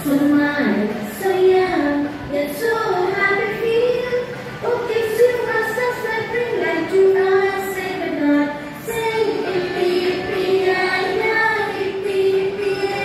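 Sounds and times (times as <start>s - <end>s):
women singing in unison: 6.5s - 13.0s.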